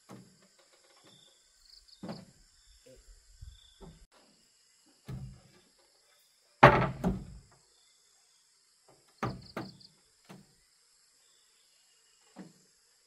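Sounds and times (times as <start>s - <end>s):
knocks on wood: 6.6s - 7.4s.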